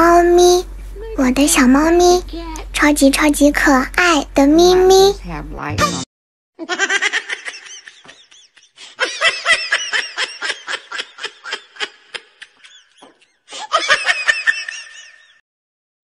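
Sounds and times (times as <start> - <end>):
high-pitched laughter: 6.6 - 15.4.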